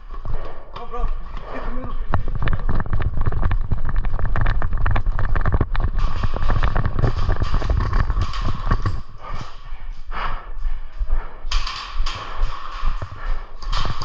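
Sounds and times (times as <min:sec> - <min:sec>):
fast footsteps: 0:00.0 - 0:14.0
camera jostling rumble: 0:01.6 - 0:09.9, 0:11.2 - 0:14.0
gear rattling: 0:02.0 - 0:09.6, 0:11.5 - 0:14.0.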